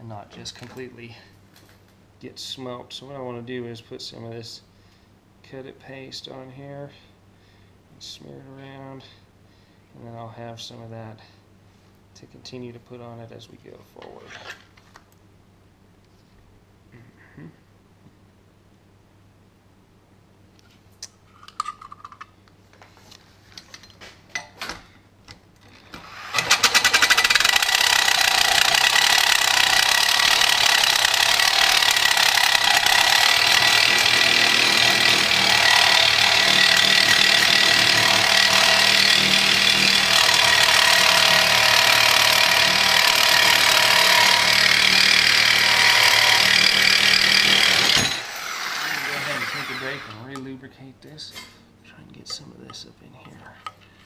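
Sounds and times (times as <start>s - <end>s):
reciprocating saw cutting steel: 26.0s - 50.4s.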